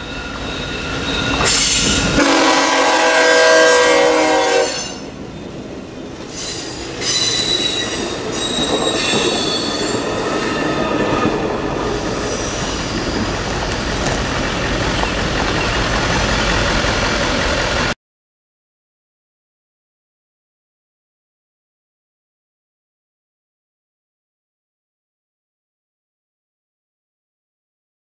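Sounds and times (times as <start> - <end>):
high-pitched wheel squeal: 0.0 - 2.2, 6.3 - 16.7
train wheels rolling: 0.0 - 2.9, 4.2 - 18.0
train horn: 1.4 - 5.2
wheels clacking over rail joints: 5.2 - 18.0.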